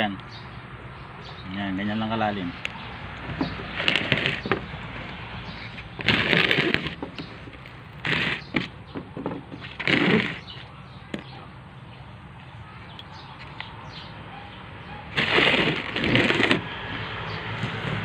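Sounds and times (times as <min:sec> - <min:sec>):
hand scrunching potting soil: 0:03.6 - 0:08.8, 0:09.6 - 0:10.7, 0:15.1 - 0:16.7.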